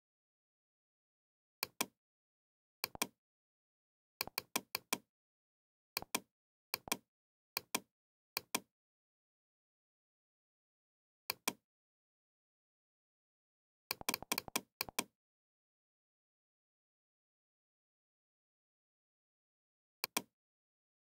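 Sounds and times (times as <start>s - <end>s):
computer mouse clicks: 1.6s - 2.0s, 2.8s - 3.2s, 4.2s - 5.0s, 6.0s - 7.0s, 7.6s - 8.7s, 13.9s - 15.1s, 20.0s - 20.3s.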